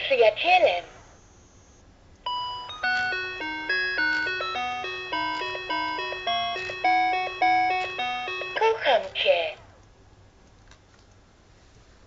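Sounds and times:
toy tinny chime melody: 0:02.3 - 0:09.0.

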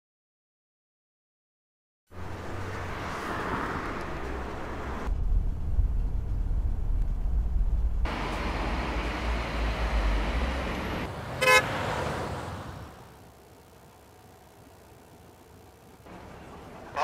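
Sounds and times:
passing traffic: 0:02.1 - 0:17.0
car engine rumble: 0:02.2 - 0:17.0
car horn toot: 0:11.4 - 0:11.7.

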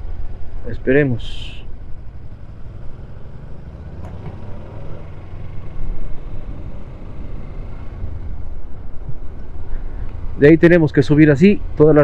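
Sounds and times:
motorcycle engine rumble: 0:00.0 - 0:12.0.

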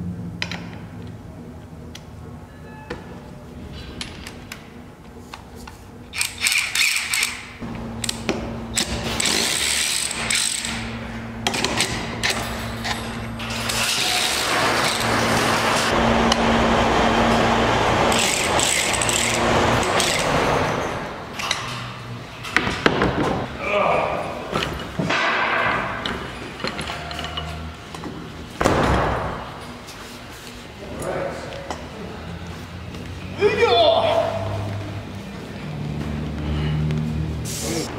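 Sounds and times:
electric ratchet running: 0:06.1 - 0:11.0, 0:17.9 - 0:20.8.

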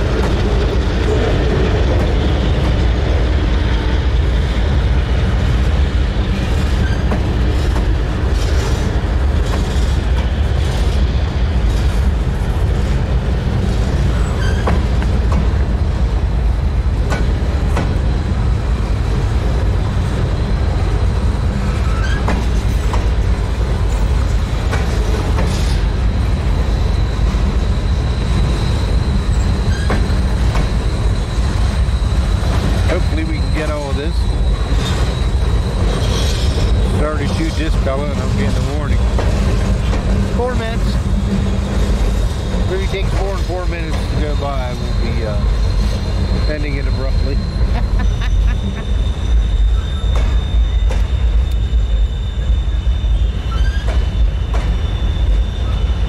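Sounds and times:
wheels clanking over rail joints: 0:00.0 - 0:47.7
freight train rumbling past: 0:00.0 - 0:56.0
high wheel squeal: 0:06.3 - 0:11.1, 0:13.6 - 0:15.0, 0:20.0 - 0:23.0, 0:23.8 - 0:56.0.

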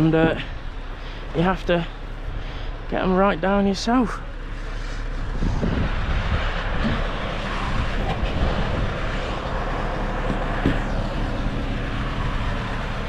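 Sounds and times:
diesel engine droning: 0:00.0 - 0:13.0.

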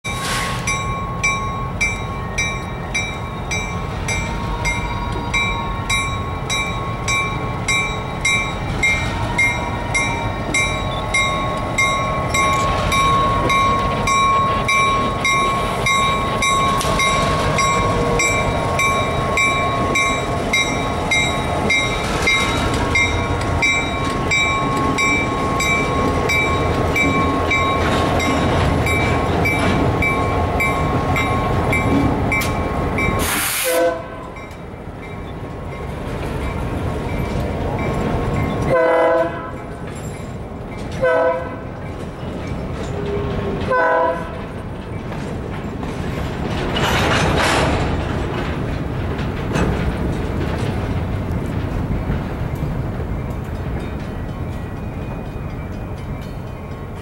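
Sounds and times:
diesel locomotive rumbling: 0:00.0 - 0:57.0
freight cars rolling on rails: 0:00.0 - 0:57.0
bell clanging: 0:00.7 - 0:33.2.

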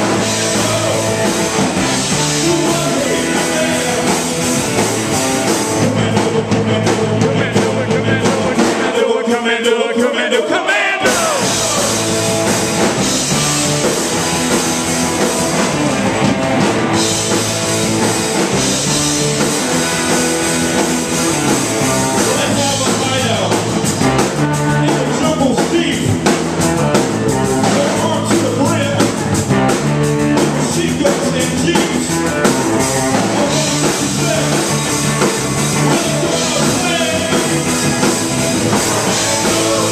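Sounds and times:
sung vocals: 0:00.0 - 0:13.8, 0:21.4 - 0:26.4, 0:27.3 - 0:29.5, 0:30.4 - 0:39.9
rock band playing live: 0:00.0 - 0:39.9.

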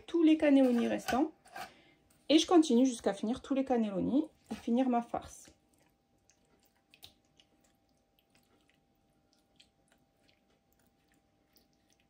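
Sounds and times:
ladle clicking and squishing filling: 0:03.4 - 0:12.0.

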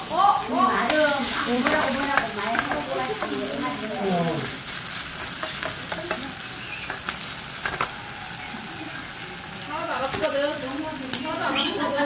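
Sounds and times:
pancake sizzling in oil: 0:00.0 - 0:12.0
spatula clicks and scrapes: 0:05.1 - 0:07.9.

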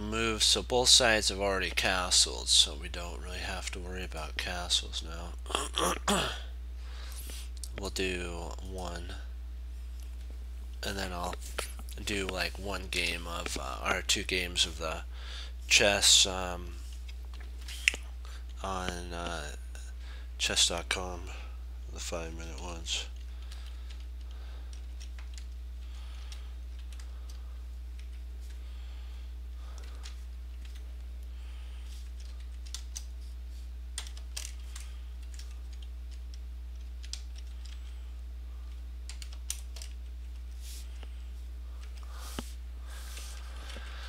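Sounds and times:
low electrical hum: 0:00.0 - 0:44.0
computer keyboard typing: 0:23.4 - 0:28.6, 0:32.1 - 0:33.1, 0:34.0 - 0:37.9, 0:38.6 - 0:40.4.

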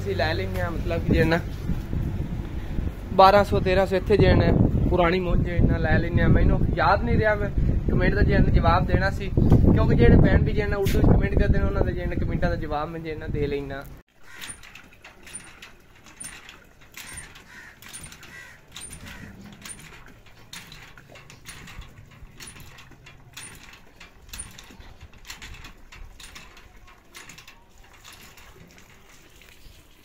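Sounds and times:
hand pump clanking and squeaking: 0:14.1 - 0:30.0
water pouring into plastic bucket: 0:28.2 - 0:30.0.

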